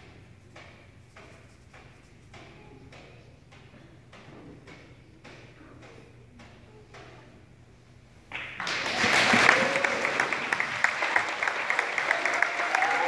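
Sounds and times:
audience applause: 0:08.3 - 0:13.0.

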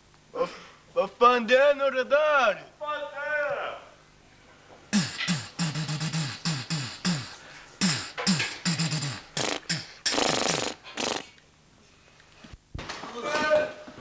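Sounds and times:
vocal gunshot imitations: 0:04.9 - 0:11.2.

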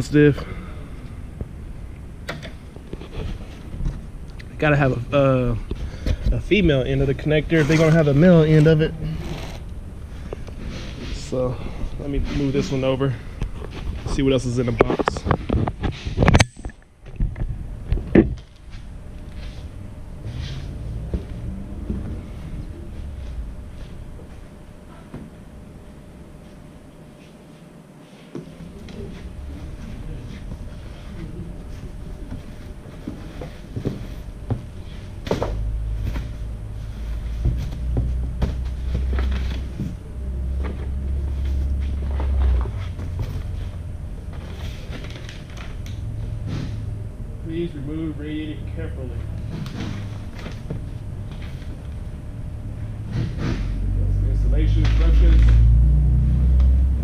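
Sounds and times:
steady low rumble: 0:00.0 - 0:27.9, 0:28.6 - 0:57.0
cardboard boxes knocking and thudding: 0:37.2 - 0:39.9.

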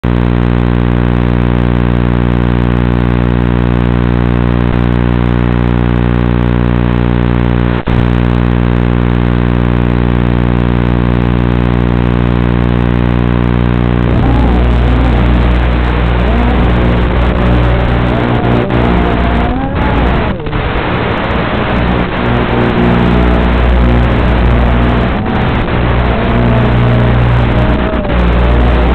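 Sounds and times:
quadcopter hum: 0:14.0 - 0:28.9.

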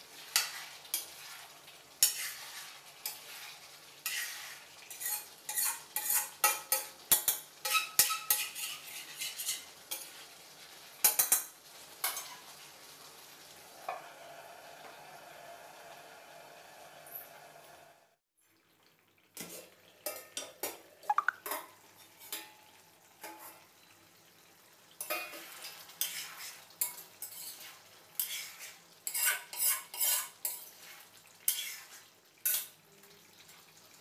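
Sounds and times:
metal spatula scraping a pan: 0:00.1 - 0:12.6, 0:23.2 - 0:23.7, 0:25.0 - 0:32.8.

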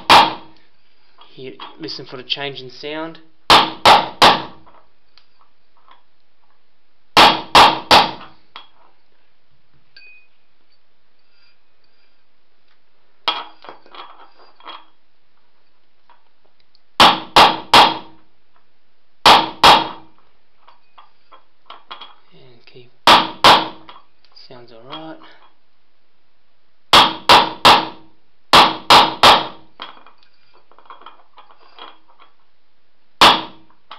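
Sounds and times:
light metal clinks: 0:09.9 - 0:12.1.

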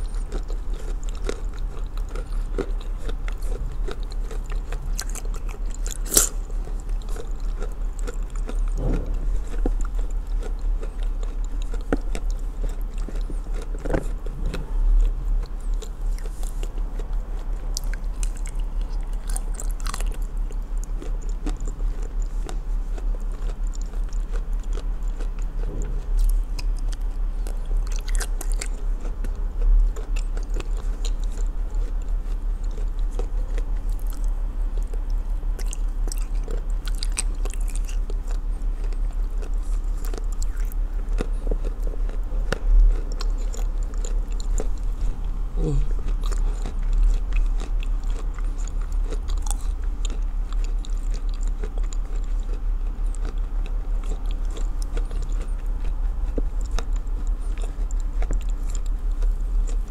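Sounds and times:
chewing and crunching: 0:00.0 - 0:59.9.

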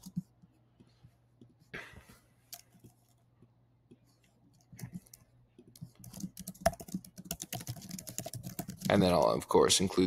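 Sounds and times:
keyboard typing: 0:00.0 - 0:00.5, 0:03.9 - 0:09.4
faint room hum: 0:00.0 - 0:10.0.

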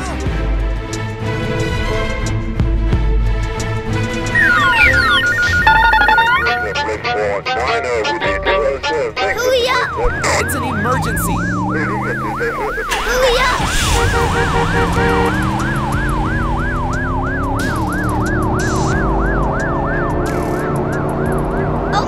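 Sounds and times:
cartoon siren yelping: 0:04.4 - 0:07.1, 0:08.1 - 0:14.0.

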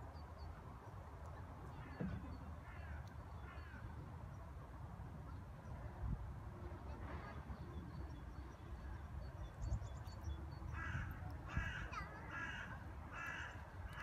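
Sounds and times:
crow cawing: 0:10.8 - 0:14.0.

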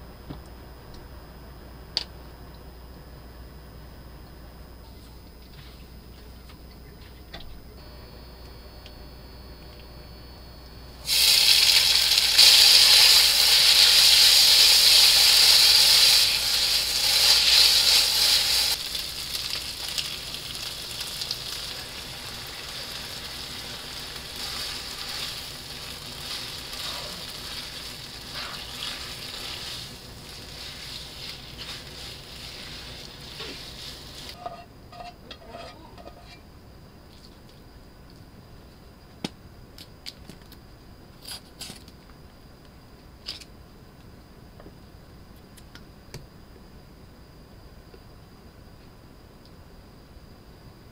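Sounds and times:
noodles sizzling in oil: 0:11.0 - 0:34.4.

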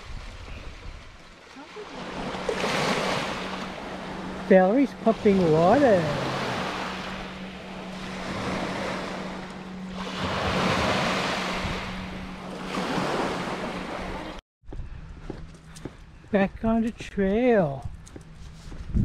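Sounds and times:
waves washing ashore: 0:00.0 - 0:14.4.

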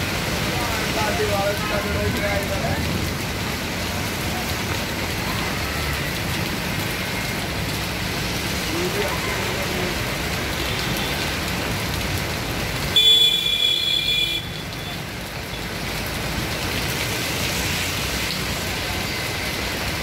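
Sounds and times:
rain and floodwater: 0:00.0 - 0:20.0
traffic on wet street: 0:00.0 - 0:20.0
vehicle horn: 0:13.0 - 0:14.6.

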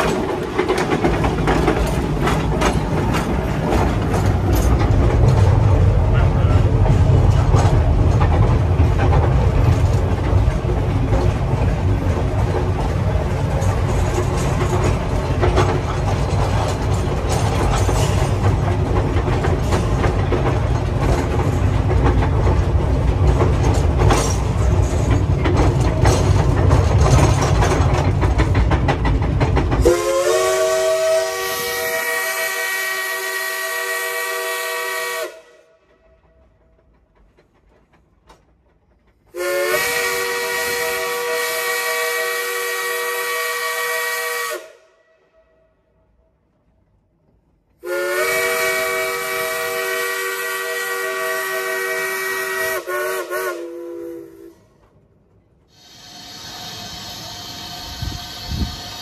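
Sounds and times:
clicks and clanks: 0:00.0 - 0:29.9
train wheels rumbling on track: 0:00.0 - 0:45.0, 0:45.9 - 0:59.0
steam whistle: 0:29.8 - 0:35.8, 0:39.4 - 0:45.7, 0:47.8 - 0:54.6, 0:55.7 - 0:59.0.

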